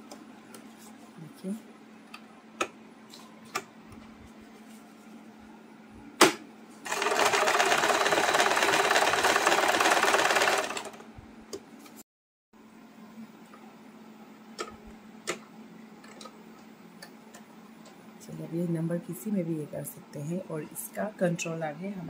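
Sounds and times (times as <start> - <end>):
sewing machine stitching: 6.9 - 11.0.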